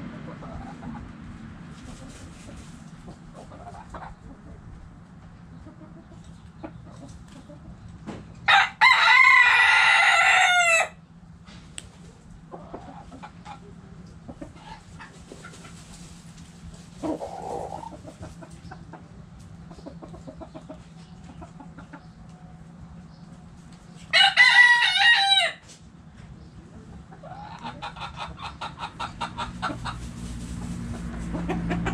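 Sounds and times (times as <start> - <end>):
hens clucking: 0.0 - 8.4, 11.5 - 31.9
loud hen call: 8.5 - 11.0, 24.1 - 25.7
rooster crowing: 8.5 - 11.0, 24.1 - 25.6.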